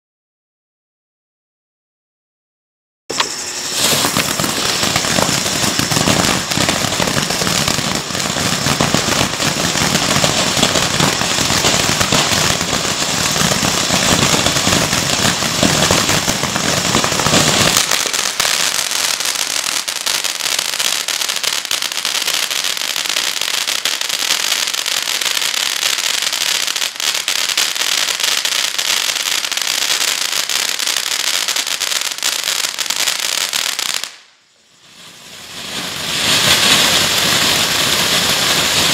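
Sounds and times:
firework fountain hissing and crackling: 3.1 - 38.9.

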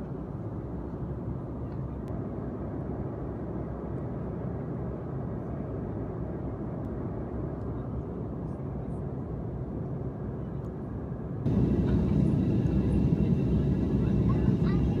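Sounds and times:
airliner cabin drone: 0.0 - 15.0.

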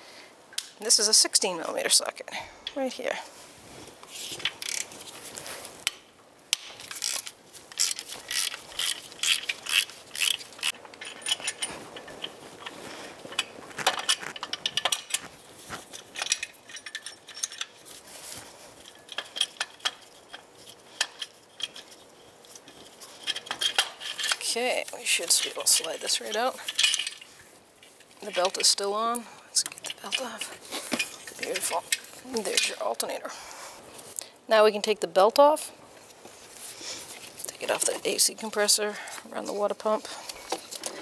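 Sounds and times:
metal bolts and tools clinking: 5.8 - 33.1.

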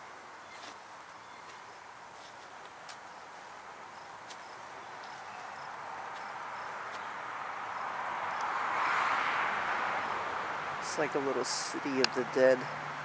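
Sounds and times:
steady rushing hiss: 10.5 - 12.7.

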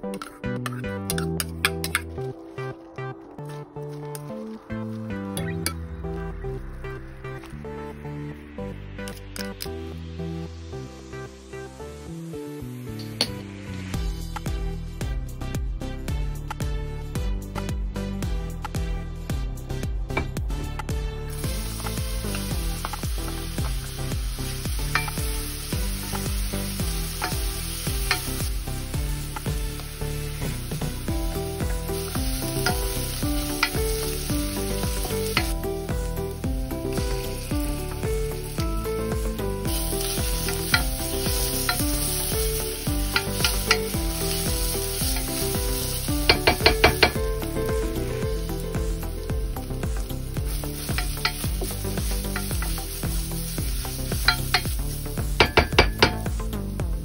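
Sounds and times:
background music with beat: 0.0 - 57.0
onion sizzling in oil: 21.3 - 57.0.

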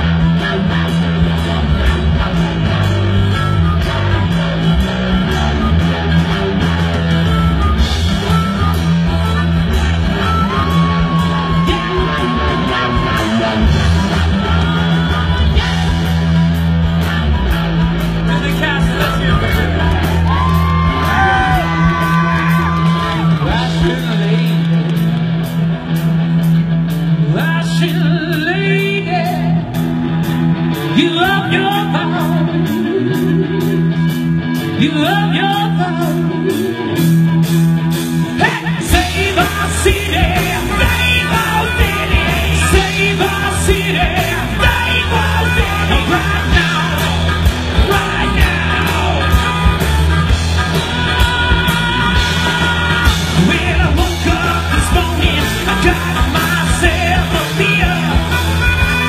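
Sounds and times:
heavy bass part: 0.0 - 59.0
live rock band playing: 0.0 - 59.0
person singing: 7.5 - 16.3, 38.4 - 59.0.

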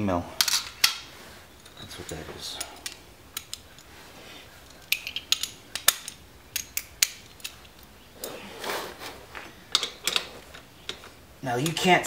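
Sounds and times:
metallic clicks of hand tools: 1.6 - 3.9, 4.7 - 7.9.

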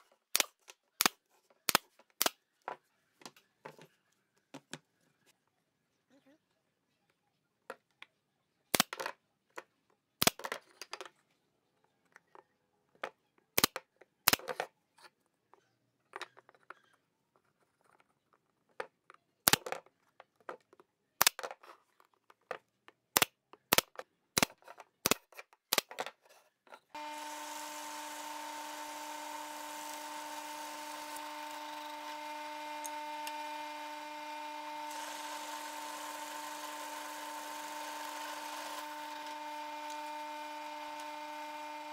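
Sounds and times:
drill press boring wood: 27.0 - 41.9.

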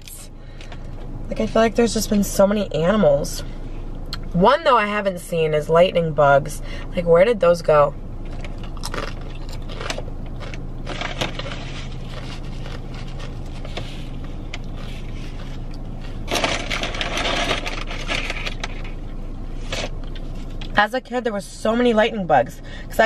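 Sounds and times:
car cabin hum: 0.0 - 23.0
chewing and crunching food: 8.2 - 19.0.

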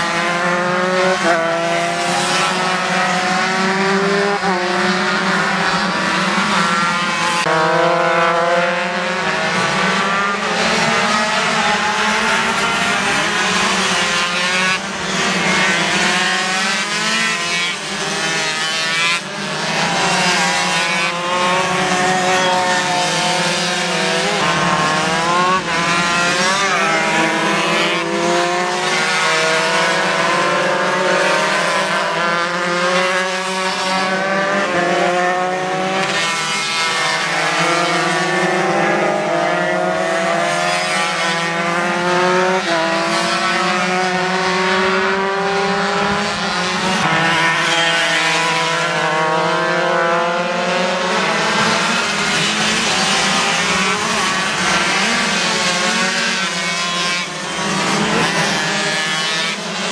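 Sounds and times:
racing motorcycle engines revving: 0.0 - 59.9.

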